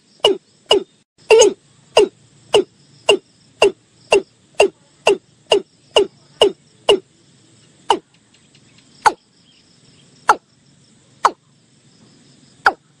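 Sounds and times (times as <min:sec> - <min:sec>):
bird calling sharp notes: 0:00.2 - 0:07.0.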